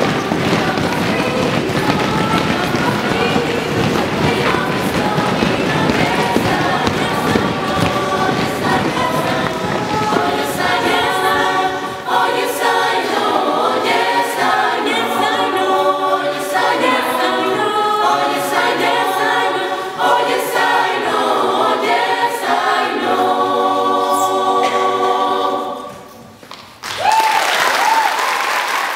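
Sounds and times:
choir singing a cappella: 0.0 - 26.2
applause: 26.8 - 28.9.

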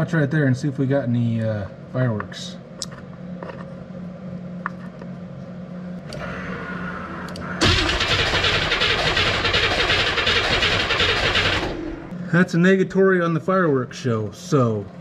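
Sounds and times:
low steady hum: 0.0 - 15.0
starter motor cranking engine: 7.6 - 12.1.

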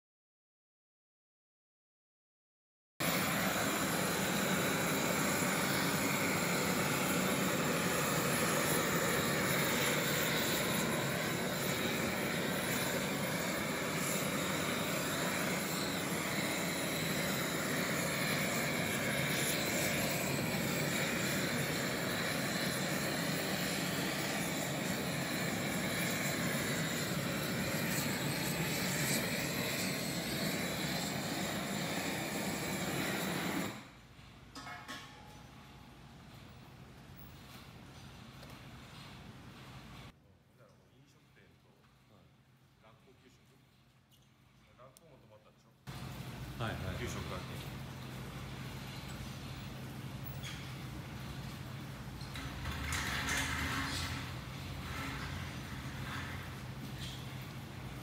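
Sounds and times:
gas torch flame hissing: 3.0 - 34.0, 45.9 - 58.0.

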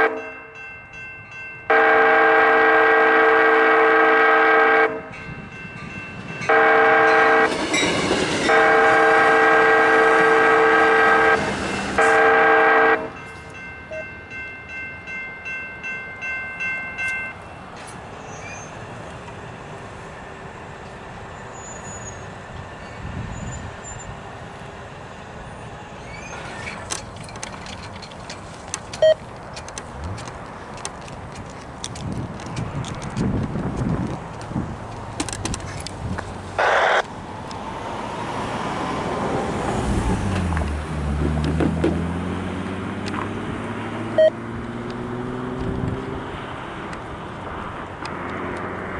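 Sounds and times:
train horn blasts: 0.0 - 0.4, 1.7 - 5.2, 6.5 - 7.6, 8.4 - 13.2
crossing bells ringing: 0.0 - 17.8
train rumble: 0.0 - 42.2
sharp clicks of train wheels: 7.2 - 9.2, 26.3 - 36.4.

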